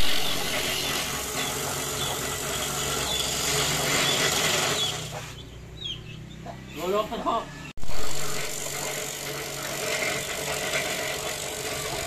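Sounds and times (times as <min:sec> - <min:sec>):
coconut grater grinding: 0:00.0 - 0:05.4, 0:07.8 - 0:12.0
electric motor hum: 0:00.0 - 0:05.8, 0:07.8 - 0:12.0.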